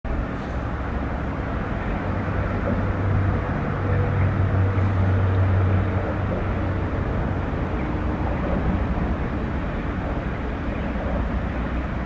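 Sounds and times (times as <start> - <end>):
vehicle rumble: 0.1 - 12.0.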